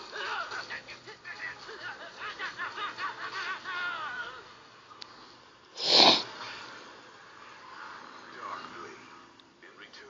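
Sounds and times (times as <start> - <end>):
voice-changed laughter: 1.8 - 4.4.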